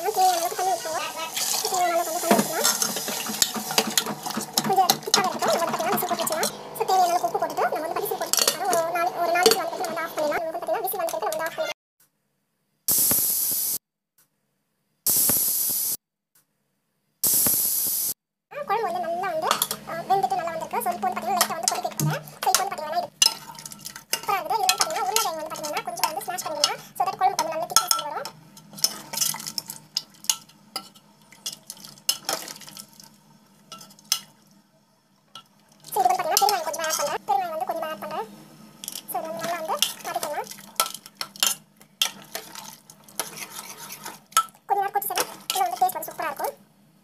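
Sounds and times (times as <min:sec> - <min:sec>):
pressure cooker steam hissing: 0:00.0 - 0:10.4, 0:12.9 - 0:13.8, 0:15.1 - 0:16.0, 0:17.2 - 0:18.2
spoon scraping and clinking pan: 0:02.3 - 0:10.3, 0:19.4 - 0:19.9, 0:20.6 - 0:32.8, 0:33.7 - 0:34.3, 0:35.4 - 0:37.2, 0:38.8 - 0:46.0.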